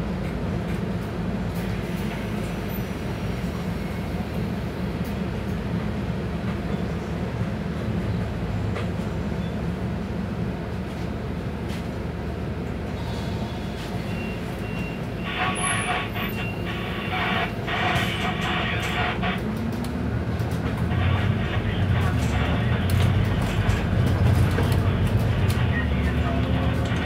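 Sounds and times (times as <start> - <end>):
bus engine running: 0.0 - 27.0
harsh signal bursts: 14.8 - 19.3.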